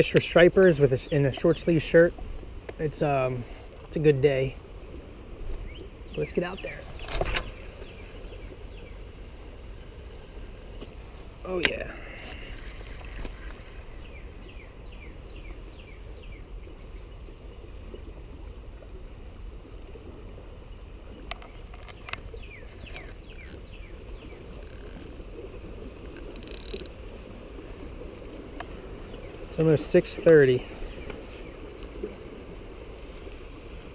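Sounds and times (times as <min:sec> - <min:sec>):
water: 0:00.0 - 0:33.9
wind: 0:00.0 - 0:33.9
fishing reel clicks: 0:23.2 - 0:23.7, 0:24.6 - 0:25.3, 0:26.1 - 0:27.0.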